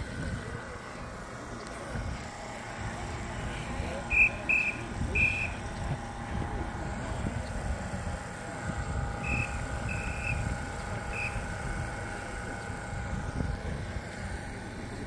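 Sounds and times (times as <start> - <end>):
faint constant whine: 0.0 - 15.0
short high beeps: 4.1 - 5.6.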